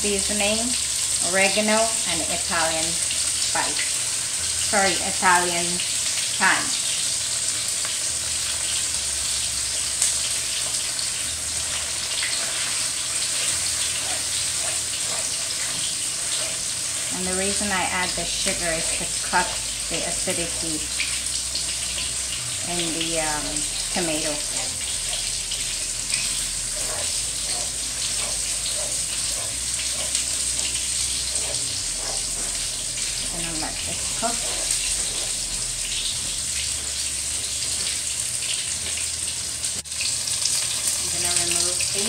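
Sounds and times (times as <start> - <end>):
food sizzling in pans: 0.0 - 42.0
wooden spoon scraping sauce: 11.6 - 22.1, 23.0 - 38.0.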